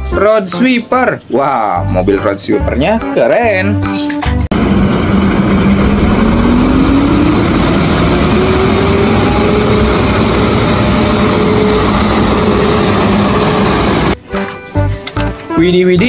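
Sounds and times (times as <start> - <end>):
road sweeper truck rushing noise: 4.5 - 14.2.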